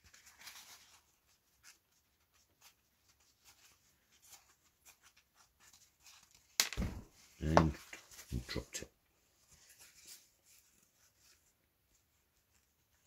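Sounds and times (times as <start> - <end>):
soft scratching and rubbing: 0.0 - 13.0.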